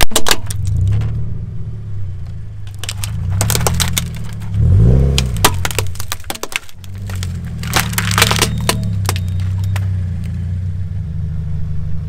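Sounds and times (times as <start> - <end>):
wood cracking and splintering: 0.0 - 1.1, 2.2 - 10.4
car engine running: 0.0 - 12.0.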